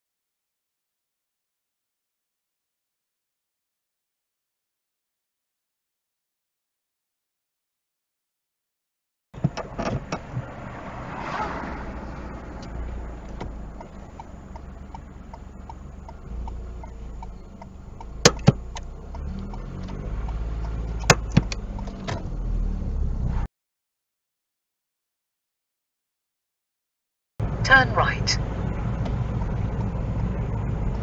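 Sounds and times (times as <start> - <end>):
car engine and road rumble: 9.4 - 23.5, 27.4 - 31.0
light ticking: 12.6 - 22.2
sharp clicks: 12.6 - 22.2.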